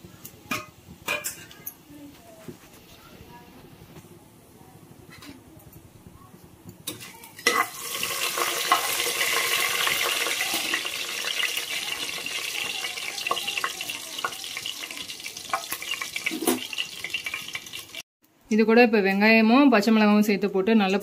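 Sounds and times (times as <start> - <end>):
spices sizzling in hot oil: 6.8 - 18.0.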